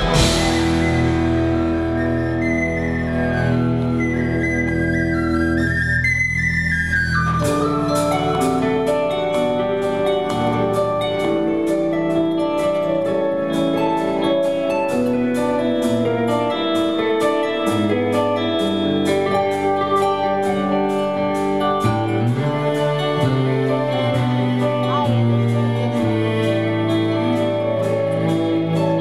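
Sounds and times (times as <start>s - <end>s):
drums on cymbals: 0.0s - 2.1s, 7.4s - 29.0s
bass line: 0.0s - 12.0s
electric guitars: 0.0s - 29.0s.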